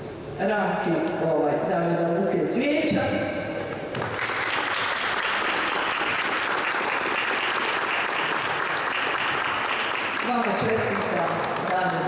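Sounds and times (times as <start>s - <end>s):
audience clapping: 3.8s - 12.0s.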